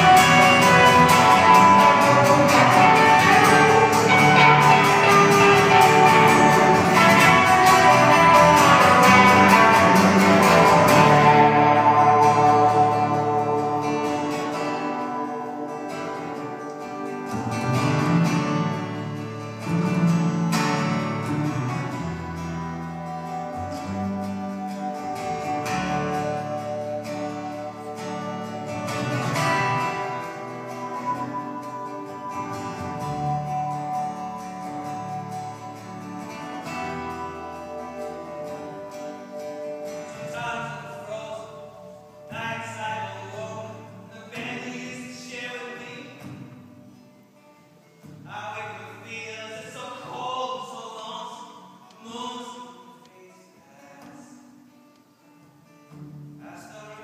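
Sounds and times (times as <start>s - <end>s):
electric guitar: 0.0s - 42.4s
acoustic guitar: 0.0s - 57.0s.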